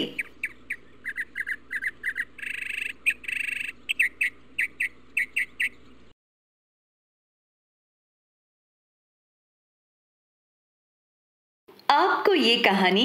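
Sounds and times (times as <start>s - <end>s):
bird trills: 0.0s - 6.1s
birds chirping: 0.0s - 6.1s.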